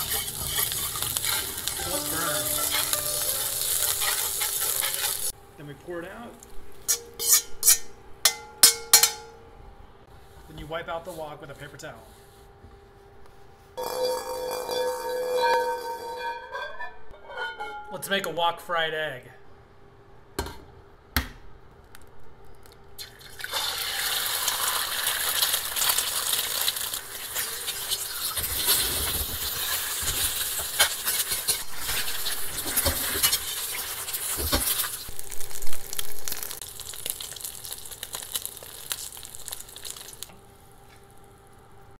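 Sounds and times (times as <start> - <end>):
egg sizzling in a wok: 0.0 - 5.4, 23.0 - 40.4.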